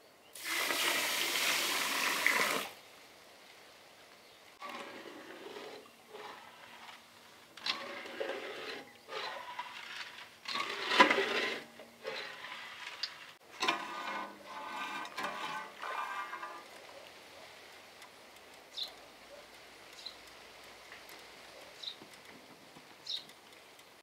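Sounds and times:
spatula scraping metal pan: 4.6s - 16.8s.

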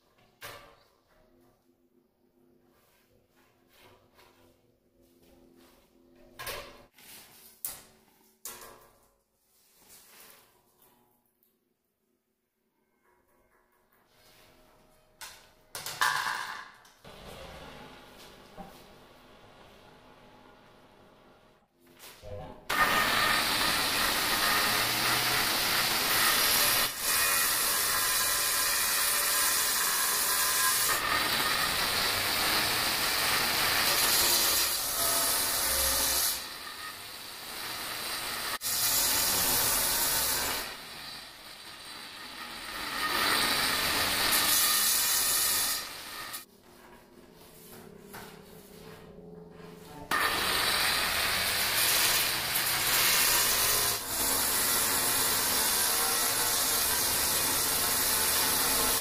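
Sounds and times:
angle grinder cutting stone: 22.7s - 46.4s, 50.1s - 59.0s.

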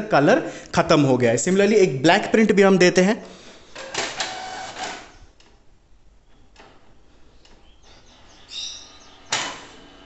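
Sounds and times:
printer mechanical noise burst: 3.8s - 5.1s
printer high whine: 4.2s - 5.1s.

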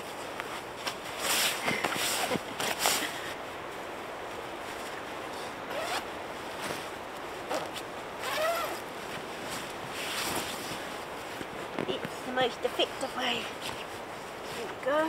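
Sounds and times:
zipper pulls: 5.7s - 6.8s, 7.5s - 8.9s.

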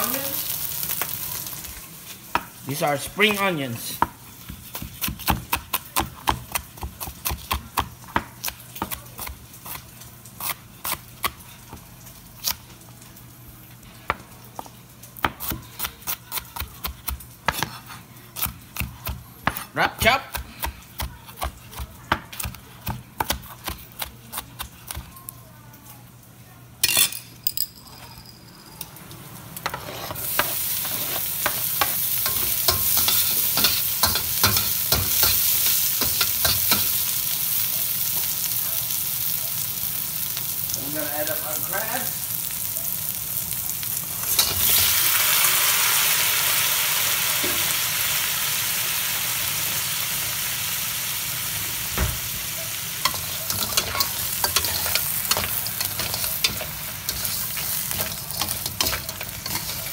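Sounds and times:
food sizzling in oil: 0.0s - 20.4s, 28.6s - 59.9s
spatula scraping and stirring: 17.0s - 18.6s, 29.6s - 37.0s, 53.0s - 59.9s.

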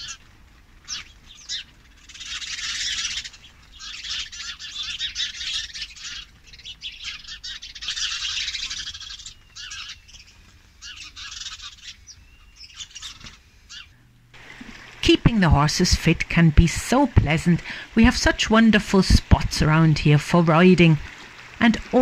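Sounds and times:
sparrows chirping: 0.0s - 14.0s.

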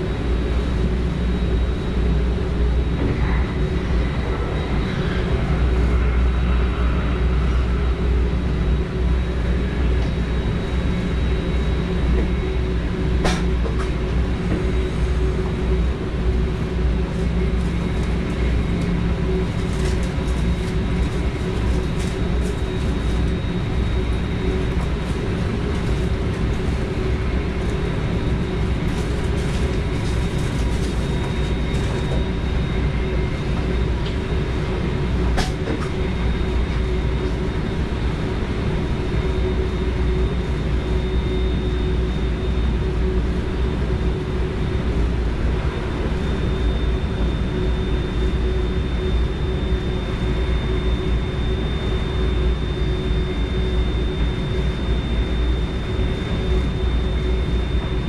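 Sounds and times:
train wheels rumbling on rail: 0.0s - 40.6s
faint high whine: 0.0s - 58.0s.

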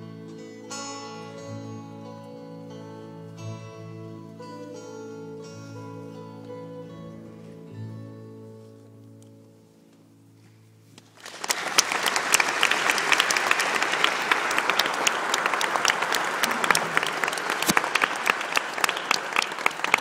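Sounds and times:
audience applauding: 11.1s - 20.0s.

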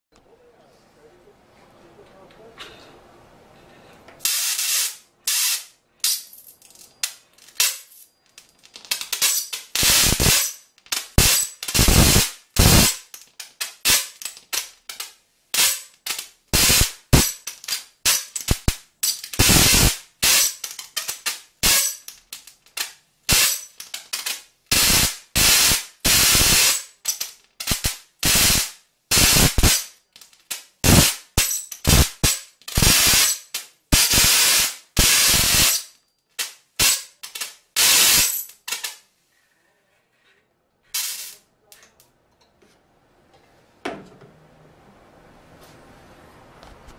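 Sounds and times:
high-voltage arcs snapping: 4.2s - 6.2s, 7.0s - 39.0s.

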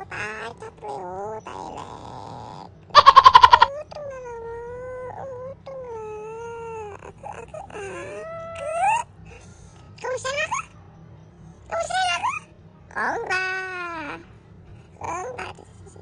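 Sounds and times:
cat meowing: 3.0s - 3.7s.

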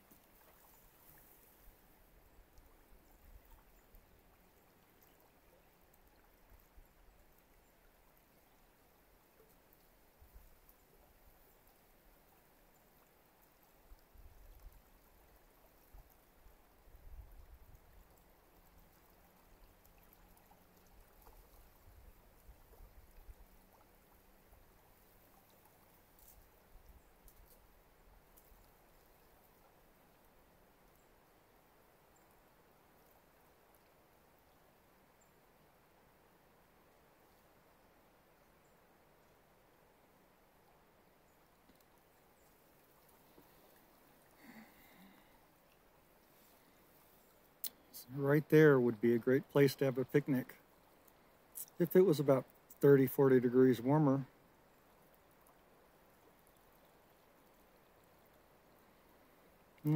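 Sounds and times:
creek flowing: 0.0s - 59.9s
light ticks: 27.2s - 27.7s, 28.3s - 28.8s, 41.5s - 44.3s, 47.4s - 47.9s.

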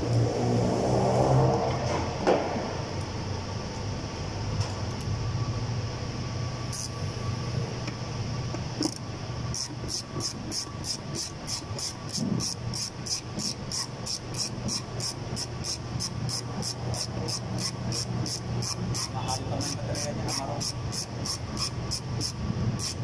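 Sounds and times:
steady low hum: 0.0s - 23.0s
ratchet wrench clicking: 8.8s - 23.0s.

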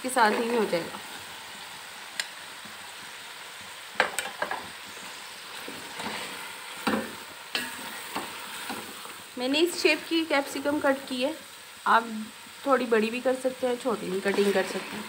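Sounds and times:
food sizzling in a pot: 0.0s - 15.0s.

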